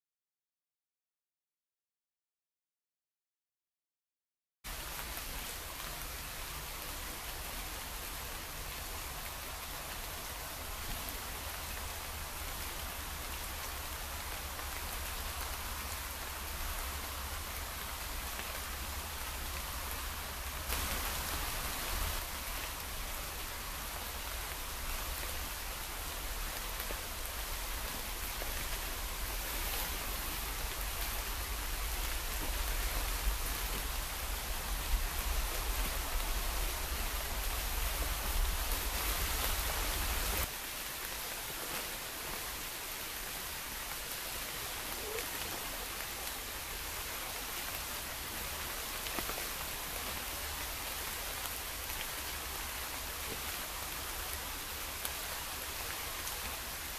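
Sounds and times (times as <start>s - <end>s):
heavy rain hissing: 4.7s - 56.9s.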